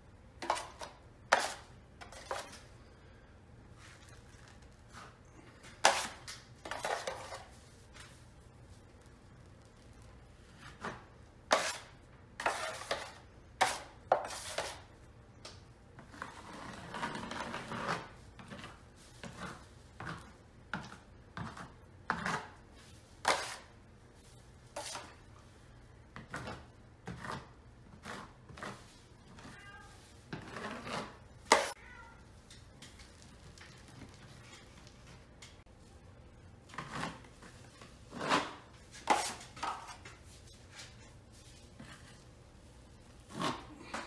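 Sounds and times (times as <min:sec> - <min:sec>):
taping knife scraping compound: 0:00.4 - 0:02.6, 0:10.5 - 0:14.9, 0:16.0 - 0:20.4, 0:21.4 - 0:23.7, 0:24.7 - 0:25.2, 0:26.3 - 0:29.0, 0:30.3 - 0:31.8, 0:36.7 - 0:42.2, 0:43.2 - 0:44.0
cat meowing: 0:29.4 - 0:30.0, 0:31.8 - 0:32.2.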